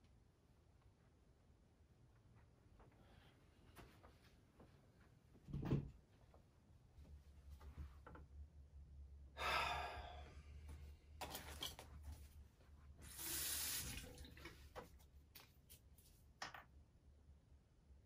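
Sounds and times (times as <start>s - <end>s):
water splashing into sink: 13.0s - 14.9s.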